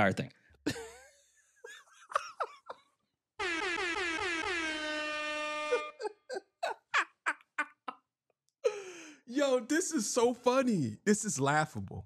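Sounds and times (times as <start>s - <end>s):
air horn blasts: 3.4s - 6.0s.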